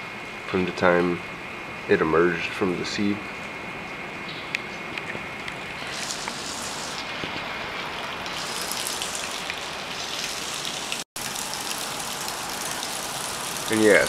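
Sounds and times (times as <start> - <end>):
steady rain: 5.4 - 14.0.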